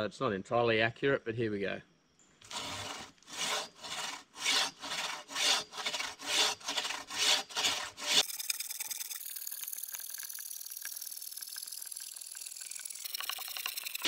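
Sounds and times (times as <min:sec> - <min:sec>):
bow saw cutting log: 0:02.4 - 0:08.3.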